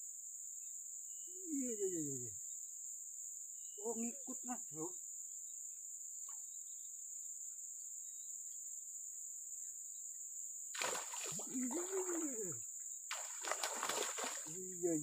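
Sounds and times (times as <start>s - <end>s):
high insect buzz: 0.0s - 15.0s
fish thrashing and splashing: 10.8s - 12.4s, 13.1s - 14.6s.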